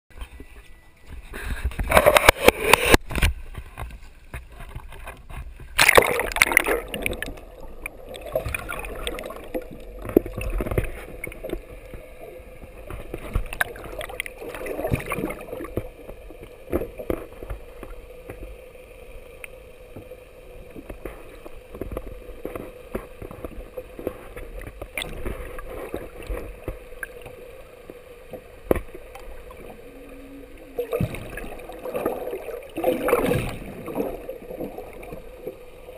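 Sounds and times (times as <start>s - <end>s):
splash into water: 5.8s - 7.3s, 30.8s - 34.2s
muffled underwater gurgling: 5.9s - 18.8s.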